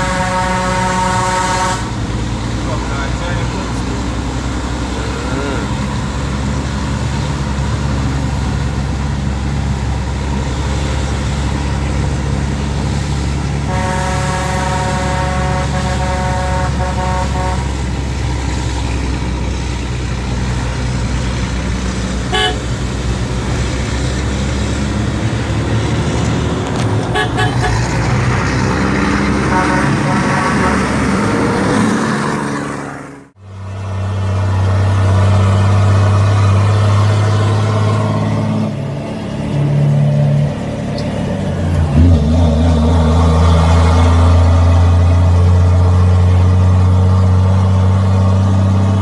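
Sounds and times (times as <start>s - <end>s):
vehicle horn: 0.0s - 2.0s, 13.7s - 17.9s, 22.3s - 22.7s, 27.1s - 27.9s, 29.4s - 31.2s
diesel truck engine braking: 0.0s - 49.0s.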